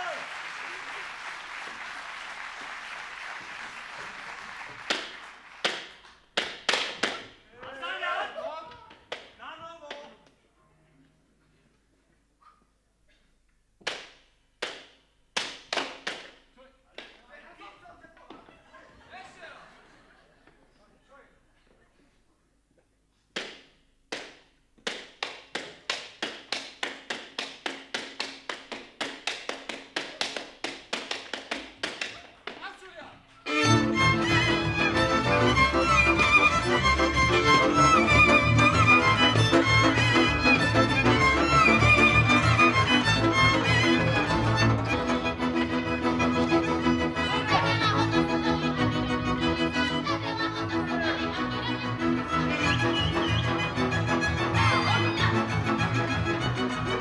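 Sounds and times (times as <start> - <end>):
audience applause: 0.0 - 6.2, 35.2 - 45.2.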